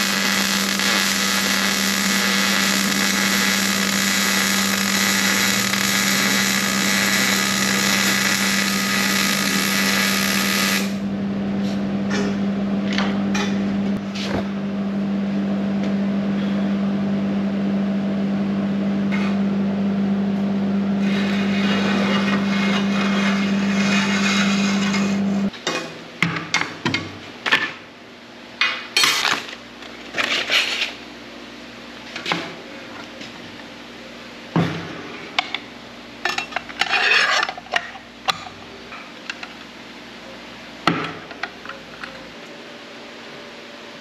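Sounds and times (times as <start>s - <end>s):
steady machine hum: 0.0s - 26.3s.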